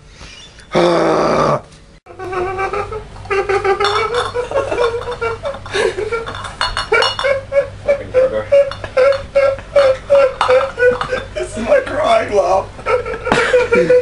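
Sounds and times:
man's whining crying laugh: 2.1s - 6.2s, 6.9s - 11.4s, 12.9s - 14.0s
glass bottles clinking: 3.5s - 7.5s, 8.5s - 12.1s.

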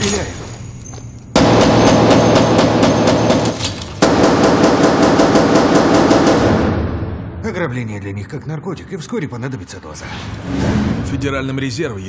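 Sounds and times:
rapid pistol fire: 1.4s - 7.2s
loud trailer music: 10.2s - 11.5s.

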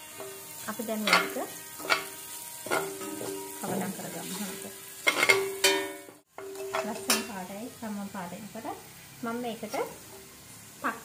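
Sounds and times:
metal spoon scraping a pan: 0.0s - 7.4s, 9.6s - 10.3s
sizzling in hot oil: 0.0s - 11.0s.

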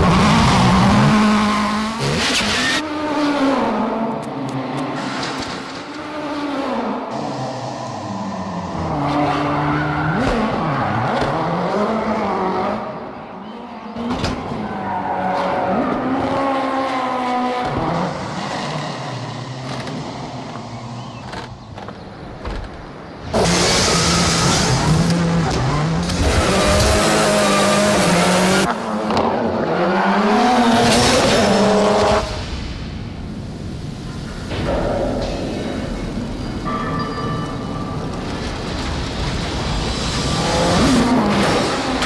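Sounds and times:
rally car engine revving: 0.0s - 13.0s, 23.2s - 32.4s, 39.4s - 42.0s.

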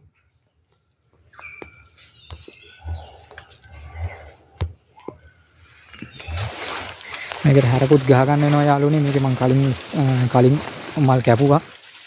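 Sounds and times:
outdoor ambience: 0.0s - 12.0s
bird chirps: 1.2s - 8.6s.

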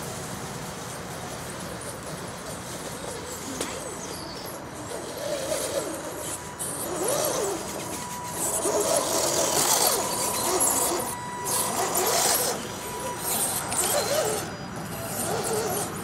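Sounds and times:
rc truck motors whining: 0.0s - 16.0s.

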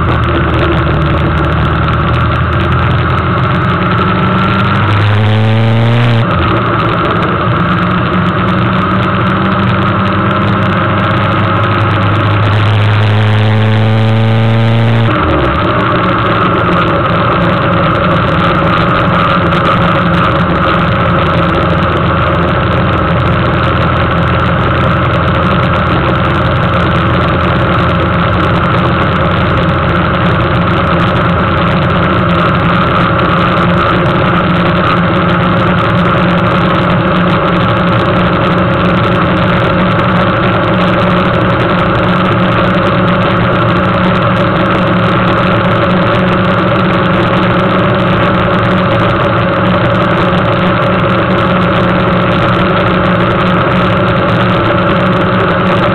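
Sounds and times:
motorcycle engine droning: 0.0s - 55.9s.

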